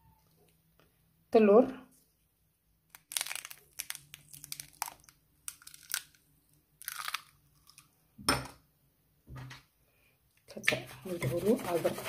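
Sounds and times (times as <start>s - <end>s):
eggshell crackling: 2.9s - 8.0s.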